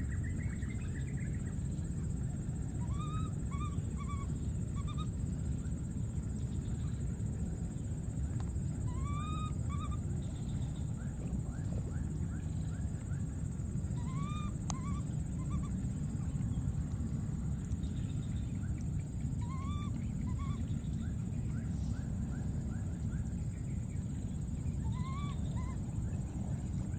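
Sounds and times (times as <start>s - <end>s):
baby monkey squeaky calls: 2.8s - 5.1s, 8.9s - 10.0s, 14.0s - 15.8s, 19.4s - 20.6s, 24.8s - 25.8s.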